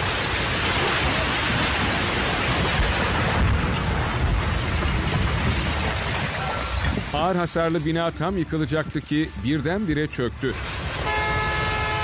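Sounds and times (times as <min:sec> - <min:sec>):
building collapsing rumble: 0:00.0 - 0:08.4.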